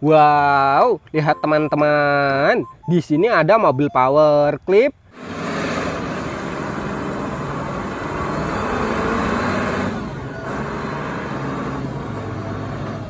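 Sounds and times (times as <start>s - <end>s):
forklift engine running: 5.1s - 13.0s.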